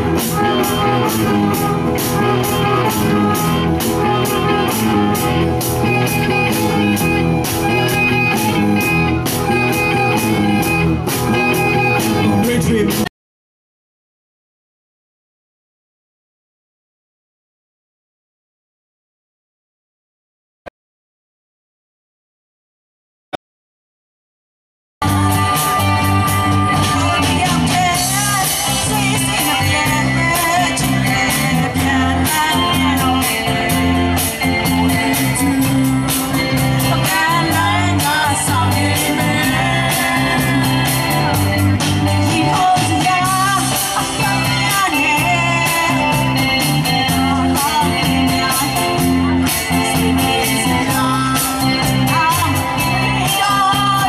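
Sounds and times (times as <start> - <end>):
woman singing: 0.0 - 12.0, 25.0 - 54.0
live rock band: 0.0 - 13.1, 25.0 - 54.0.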